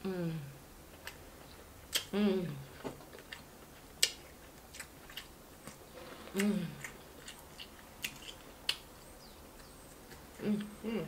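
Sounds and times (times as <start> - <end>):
person humming: 0.0 - 0.5, 2.1 - 2.7, 6.3 - 6.9, 10.4 - 11.0
sharp mouth clicks and smacks: 1.9 - 2.1, 4.0 - 5.8
close-up chewing and biting: 3.0 - 10.8.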